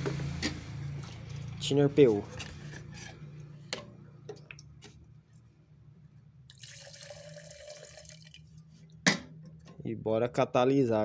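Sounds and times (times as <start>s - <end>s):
liquid pouring into metal can: 6.5s - 8.5s.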